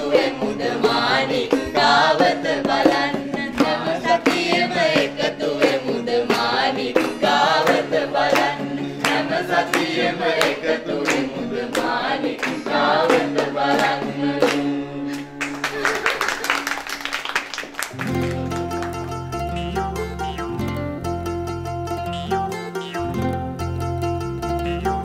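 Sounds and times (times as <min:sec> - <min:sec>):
several voices singing: 0:00.0 - 0:15.2
drum or handclap beats: 0:00.0 - 0:19.6.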